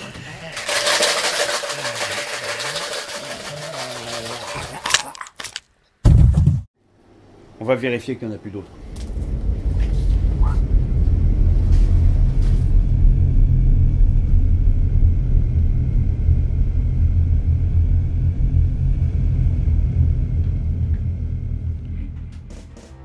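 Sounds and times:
low rumbling drone: 8.7 - 23.0.

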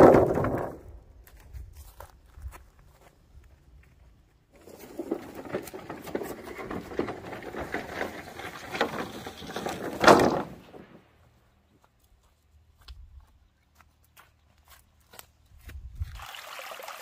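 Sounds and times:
dry plants rustling: 4.5 - 16.1.

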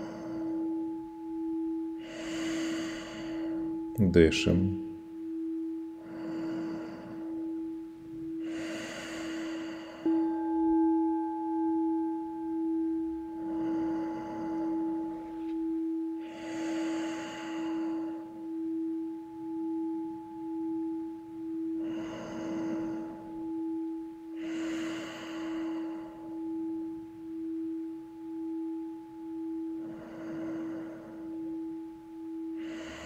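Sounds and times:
singing bowl ringing: 0.0 - 33.0.

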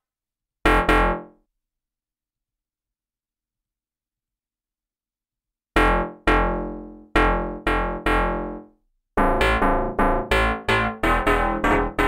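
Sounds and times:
plucked synth bass notes: 5.8 - 8.6, 9.2 - 12.0.

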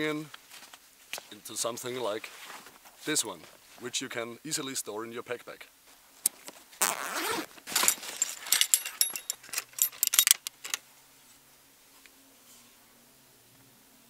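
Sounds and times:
nylon fabric rustling: 6.5 - 10.2
backpack zipper: 6.8 - 8.0
rifle stock metal clicks: 8.5 - 10.8.

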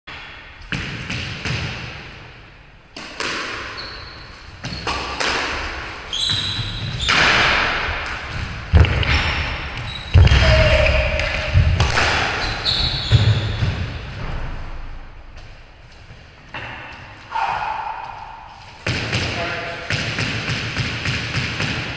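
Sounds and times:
squash ball smacking rackets and walls: 0.1 - 21.9
shoes squeaking on wooden floor: 6.0 - 7.4, 8.2 - 14.4.

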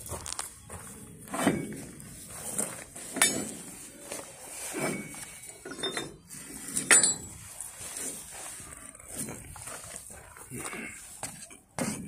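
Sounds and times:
metal coupling clinking: 3.1 - 3.7, 4.8 - 7.4.

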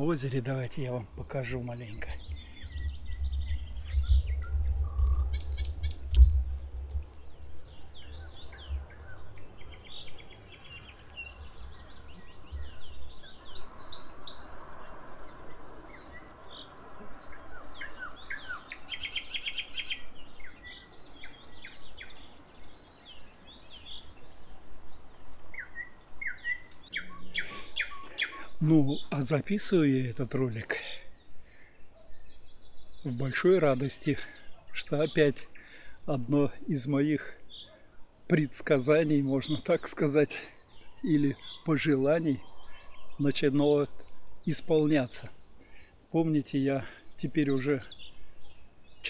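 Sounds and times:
nightingales singing: 0.0 - 49.0
camera handling rumble: 4.9 - 7.3.

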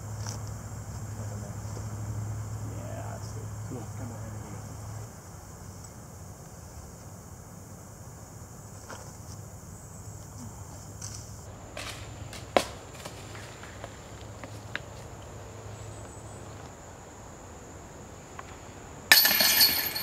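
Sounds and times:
disc striking metal chains: 19.1 - 20.0.

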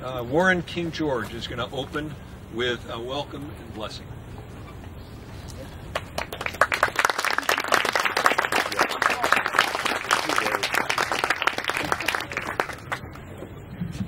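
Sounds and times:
audience applauding: 5.9 - 13.2.

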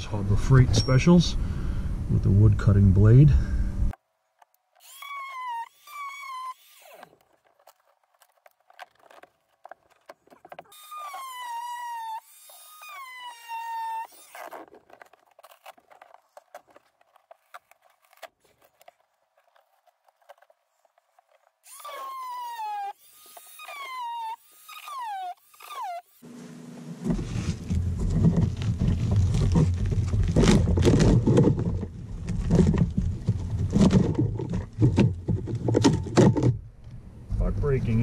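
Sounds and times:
oscillating multi-tool cutting wood: 4.4 - 31.0.

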